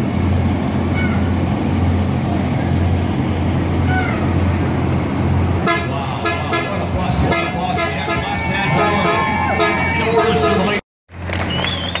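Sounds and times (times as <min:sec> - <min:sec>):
bus engine humming: 0:00.0 - 0:12.0
vehicle horn honking: 0:05.6 - 0:10.8.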